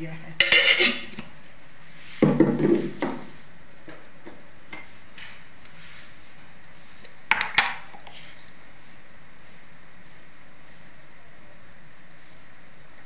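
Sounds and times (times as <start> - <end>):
steady low hiss: 0.0 - 13.0
metal utensils clinking: 0.4 - 1.2.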